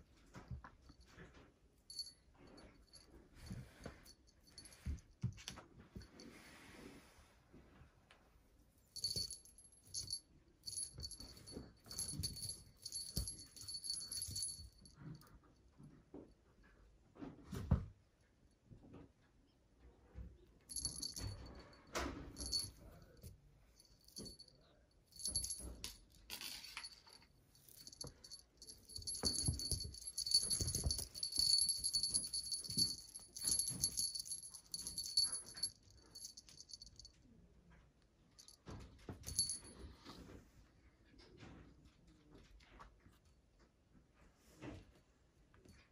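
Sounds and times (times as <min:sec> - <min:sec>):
small bell jingling: 0:01.9 - 0:06.4, 0:09.0 - 0:15.4, 0:20.7 - 0:37.2, 0:38.4 - 0:40.0.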